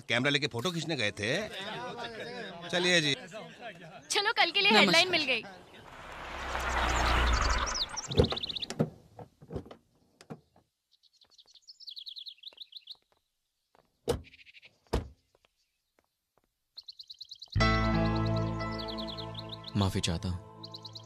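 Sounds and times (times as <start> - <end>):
small birds chirping: 3.4 - 8.9, 10.4 - 21.0.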